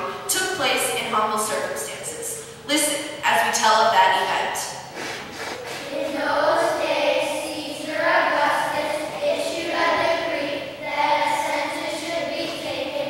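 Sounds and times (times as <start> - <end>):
children's choir singing: 5.6 - 13.0.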